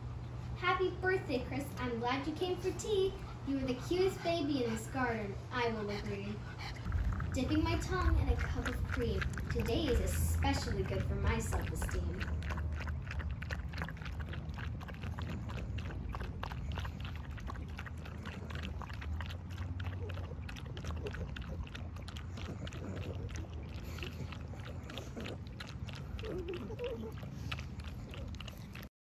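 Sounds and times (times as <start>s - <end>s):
dogs lapping and slurping: 0.0s - 28.9s
low steady rumble: 0.0s - 28.9s.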